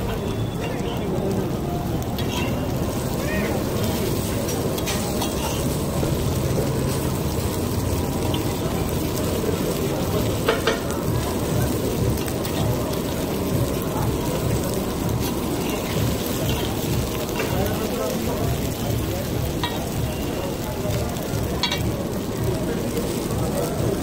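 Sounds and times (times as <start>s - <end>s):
patties sizzling in oil: 0.0s - 24.0s
metal spatula scraping griddle: 2.2s - 2.6s, 3.8s - 5.8s.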